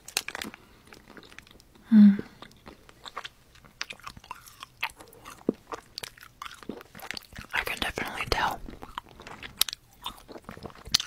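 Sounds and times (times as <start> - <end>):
person chewing candy: 0.0 - 11.0
low voice hum: 1.9 - 2.4.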